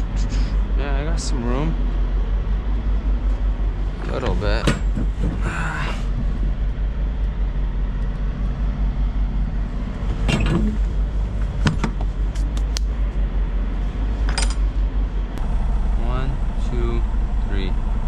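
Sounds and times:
diesel truck engine idling: 14.8s - 18.0s.

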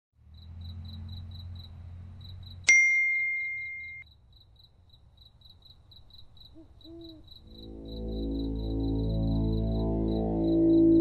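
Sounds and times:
crickets chirping: 0.3s - 2.7s, 4.0s - 11.0s
bell-like ding: 2.7s - 4.0s
low hum: 7.4s - 11.0s.

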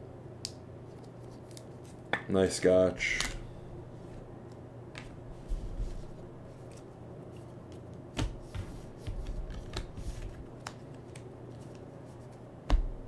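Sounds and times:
cards and plastic sleeves handled: 5.0s - 12.4s.

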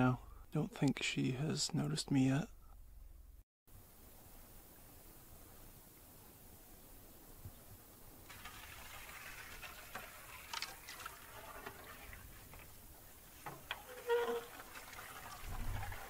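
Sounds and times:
water splashing and dripping: 8.2s - 16.0s
short pitched squeak: 13.9s - 14.5s.

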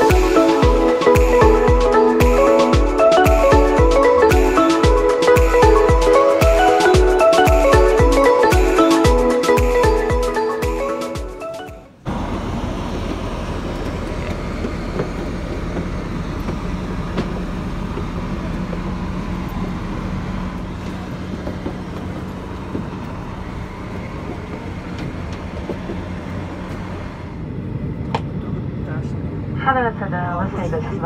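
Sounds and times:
aircraft and ground equipment drone: 12.0s - 31.0s
footsteps on metal airstair: 13.9s - 19.2s, 20.7s - 27.0s.

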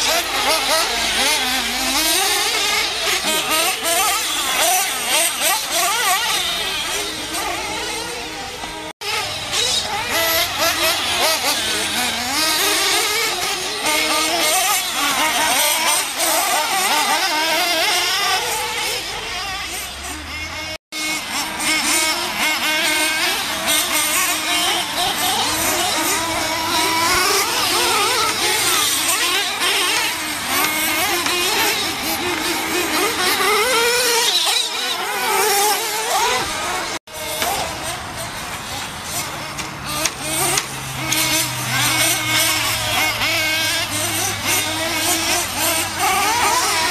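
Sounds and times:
small engines whining and revving: 0.0s - 46.9s.

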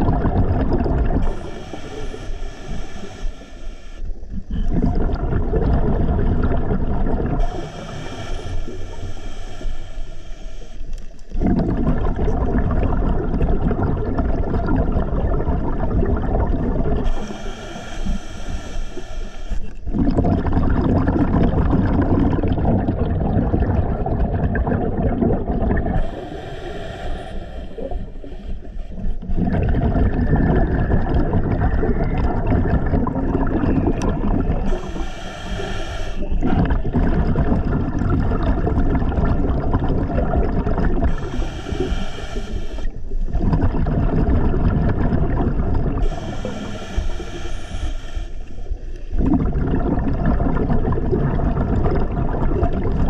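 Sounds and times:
exhaled bubbles rumbling: 0.0s - 3.2s, 4.1s - 9.6s, 10.9s - 18.7s, 19.6s - 53.0s
regulator inhale hiss: 1.2s - 4.5s, 7.4s - 11.4s, 17.0s - 19.9s, 26.0s - 29.4s, 34.5s - 36.9s, 41.0s - 43.3s, 45.9s - 49.2s.

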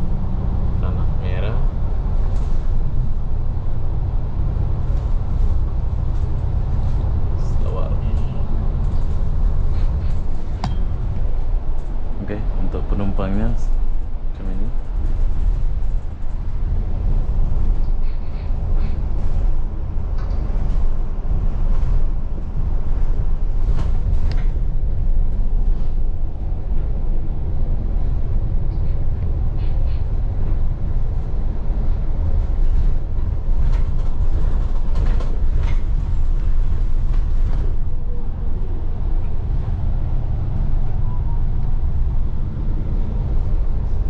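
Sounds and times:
bus engine rumble: 0.0s - 44.0s.

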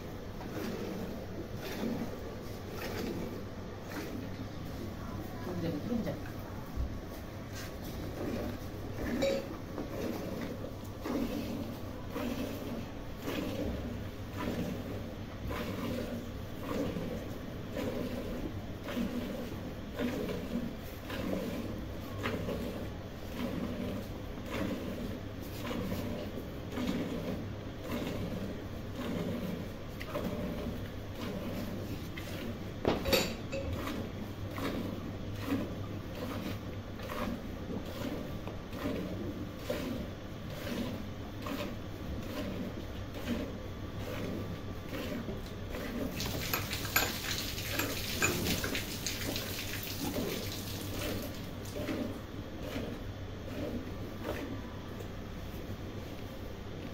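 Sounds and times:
milk squirting into steel bucket: 45.8s - 52.1s.

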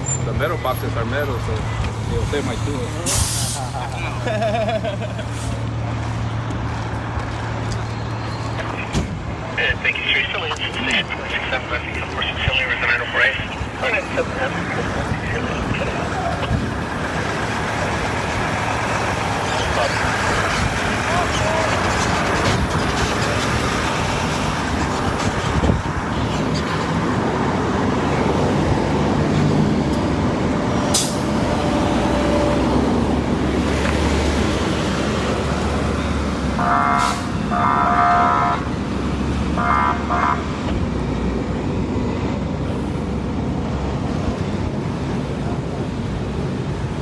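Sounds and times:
short horn-like tones: 36.6s - 38.7s.

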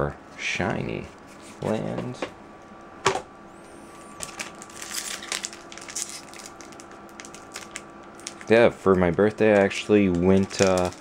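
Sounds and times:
foil wrapper tearing and crinkling: 4.2s - 11.0s.

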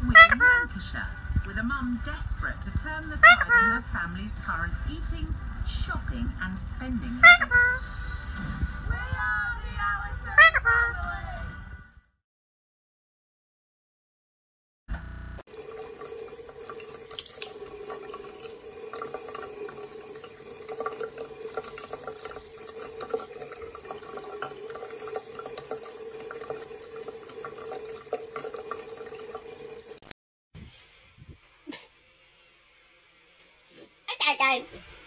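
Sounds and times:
tap running into a sink: 15.5s - 30.0s
cat pawing splashing water: 15.5s - 30.1s.

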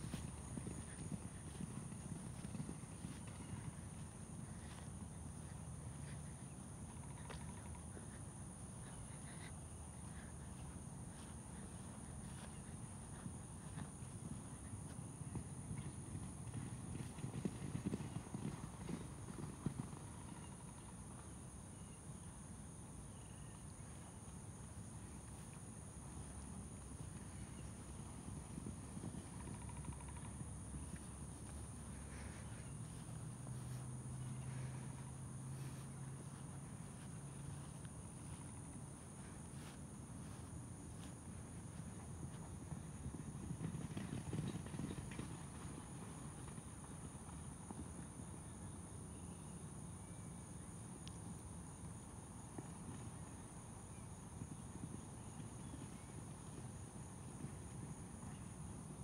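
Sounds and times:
insect chorus drone: 0.0s - 59.0s.

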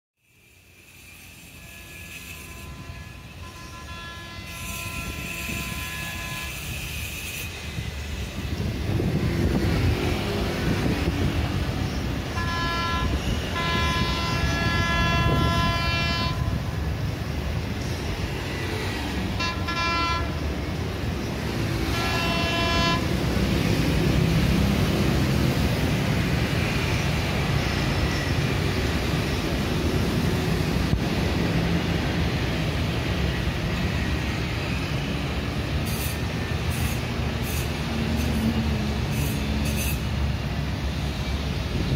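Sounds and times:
street traffic: 0.2s - 41.9s
train horn blasts: 1.0s - 7.8s, 12.2s - 16.9s, 19.3s - 20.5s, 21.7s - 23.8s.

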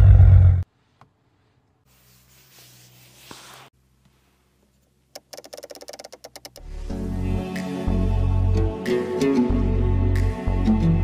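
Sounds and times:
rotary knob clicking: 5.2s - 6.6s.

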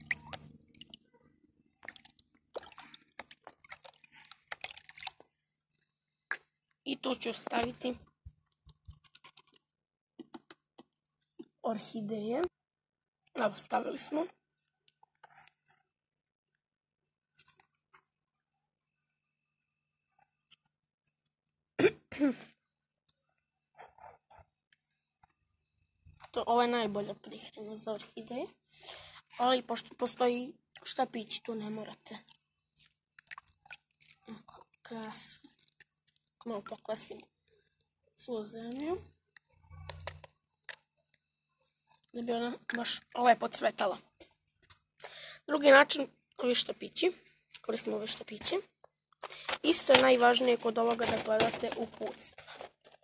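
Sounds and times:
water sloshing in plastic basin: 0.0s - 1.2s, 1.8s - 5.9s
small splashes and drips: 0.0s - 6.5s, 32.1s - 41.2s
person coughing: 21.8s - 22.5s.

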